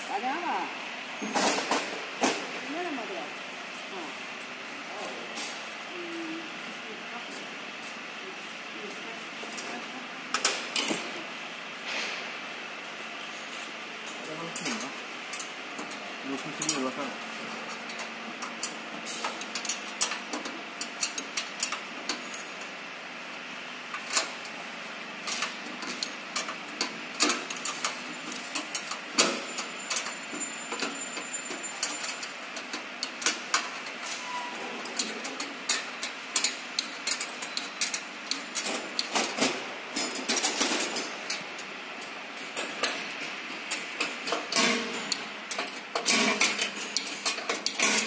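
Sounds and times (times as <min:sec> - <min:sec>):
metallic clicks of chain and tool: 0:27.2 - 0:39.1, 0:43.7 - 0:48.0.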